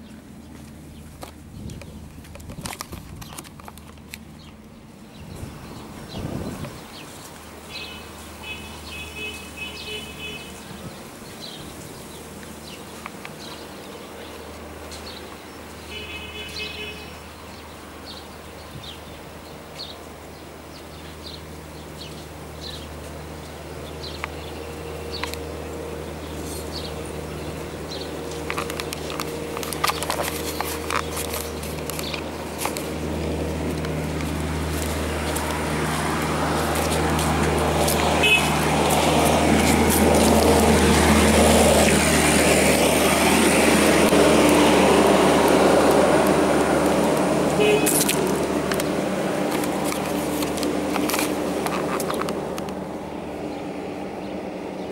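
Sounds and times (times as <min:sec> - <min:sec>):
broad noise: 0:00.0 - 0:54.9
clicks and rustling: 0:00.6 - 0:04.8, 0:28.3 - 0:43.0, 0:44.0 - 0:52.8.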